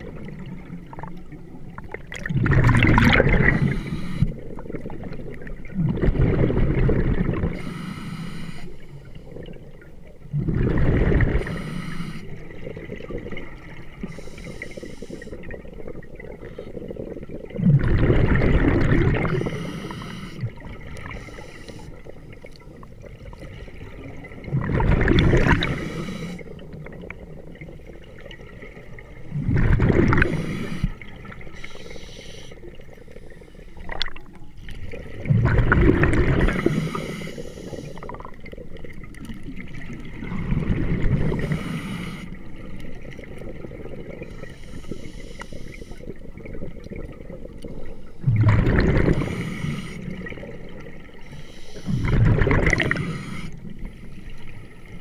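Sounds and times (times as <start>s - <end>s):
underwater breath bubbling: 0.0s - 55.0s
faint regulator hiss: 3.4s - 4.5s, 7.5s - 9.3s, 11.4s - 12.6s, 13.8s - 15.6s, 19.3s - 22.6s, 25.6s - 26.8s, 30.2s - 34.4s, 36.4s - 38.4s, 41.3s - 43.2s, 44.2s - 46.4s, 49.1s - 52.2s, 52.8s - 55.0s.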